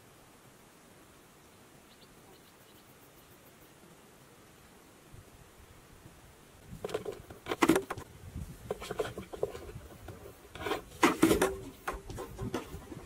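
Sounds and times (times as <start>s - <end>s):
bird scratching in cardboard box: 8.7s - 12.9s.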